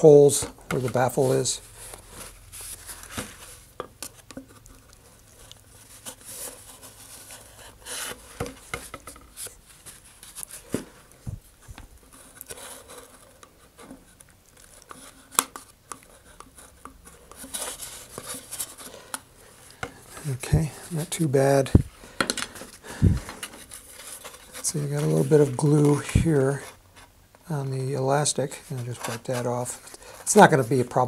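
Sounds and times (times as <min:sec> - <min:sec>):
paper towel rustling: 0:20.0 - 0:26.8.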